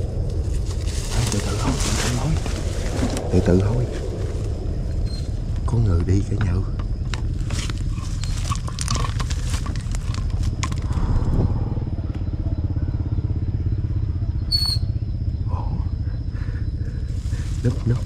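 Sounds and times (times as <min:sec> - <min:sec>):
small engine humming: 0:06.0 - 0:18.0
short high chirp: 0:14.5 - 0:15.0.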